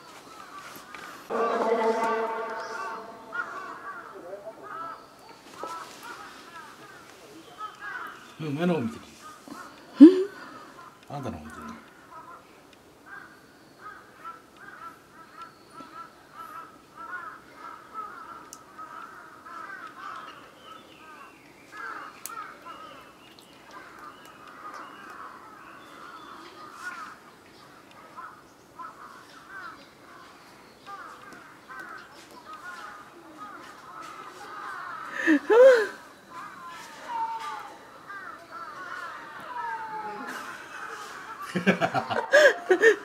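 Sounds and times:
birds chattering: 0.0s - 43.0s
faint sharp clicks: 18.4s - 19.1s, 21.4s - 22.4s.

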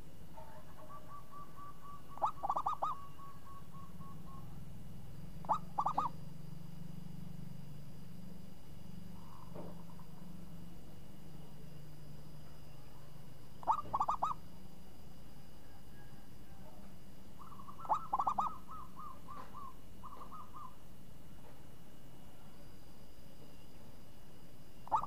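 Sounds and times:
dove cooing: 0.4s - 4.6s, 5.4s - 6.2s, 9.2s - 10.2s, 13.6s - 14.4s, 17.4s - 20.8s.

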